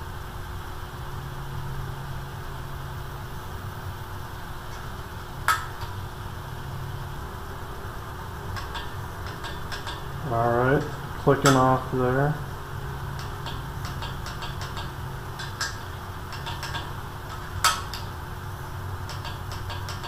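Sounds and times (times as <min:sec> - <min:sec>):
steady low hum: 0:00.0 - 0:20.0
wrench clicking: 0:08.5 - 0:11.8, 0:13.1 - 0:18.2, 0:19.0 - 0:20.0.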